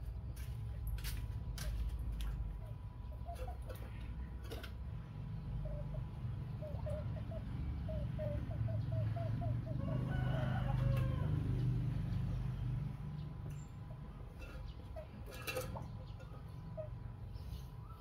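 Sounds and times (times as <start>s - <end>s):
chickens clucking: 1.5s - 18.0s
rooster crowing: 9.7s - 11.6s.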